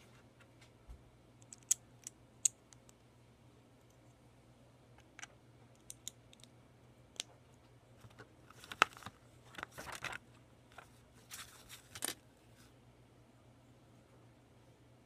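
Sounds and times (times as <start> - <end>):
paper booklet pages rustling: 8.0 - 12.2.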